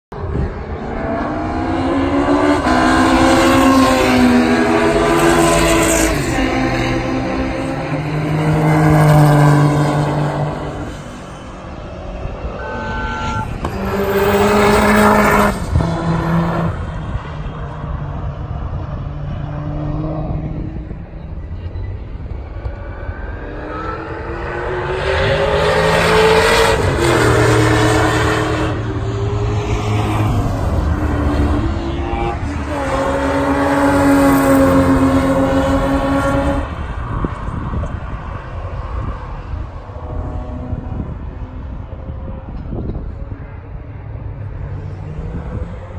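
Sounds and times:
racing car engines at full throttle: 0.1s - 45.9s.

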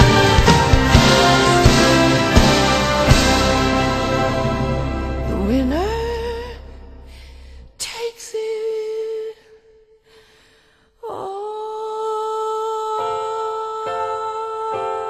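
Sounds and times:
slow music sustained notes: 0.0s - 7.8s.

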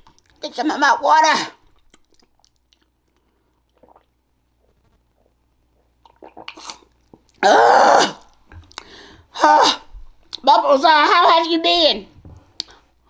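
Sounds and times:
woman's loud wordless cry: 7.4s - 8.2s, 9.3s - 9.9s.

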